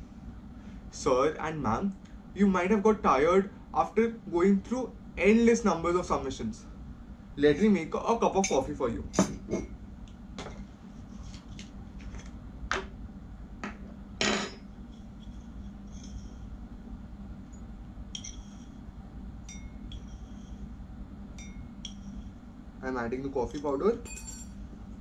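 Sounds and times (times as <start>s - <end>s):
glass clinks: 19.5s - 19.9s, 21.4s - 21.7s, 24.0s - 24.6s.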